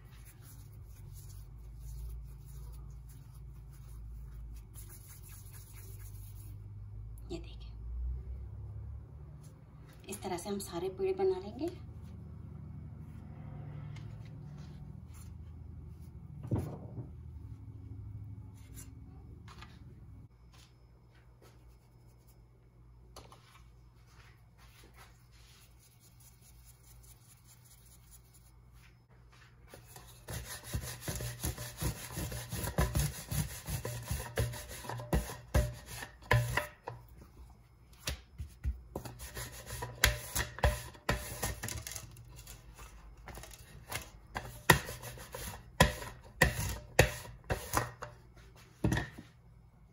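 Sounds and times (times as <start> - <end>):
rolling pin rolling dough: 29.3 - 42.0, 42.8 - 48.1.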